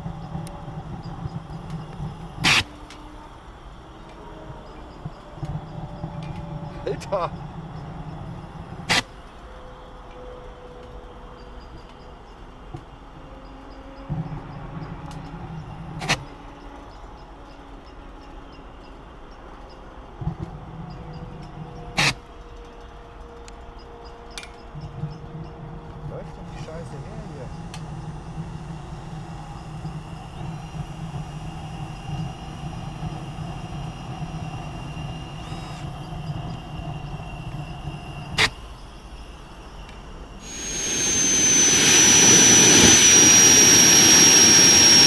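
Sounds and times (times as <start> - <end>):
turbojet engine running: 26.1 - 38.5, 40.3 - 45.0
jet engine starter humming: 40.4 - 45.0.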